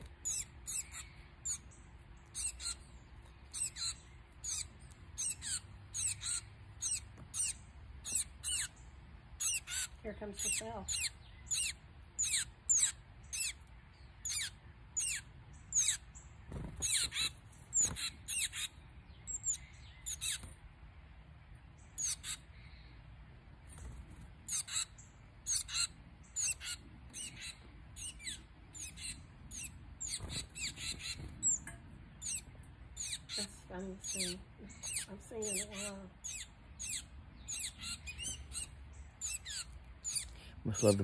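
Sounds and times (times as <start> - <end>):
titmice chirping: 0.0 - 20.5, 21.8 - 22.5, 24.5 - 41.0.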